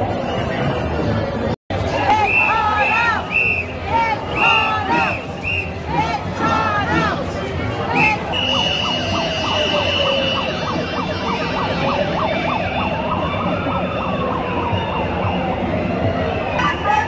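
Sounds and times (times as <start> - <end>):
crowd noise: 0.0 - 17.0
yelping siren: 8.2 - 16.7
wailing siren: 8.2 - 17.0.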